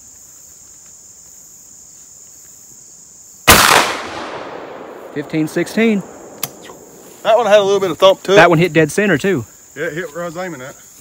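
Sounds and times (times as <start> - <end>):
high insect chirr: 0.0 - 11.0
shotgun shot echoing: 3.5 - 7.1.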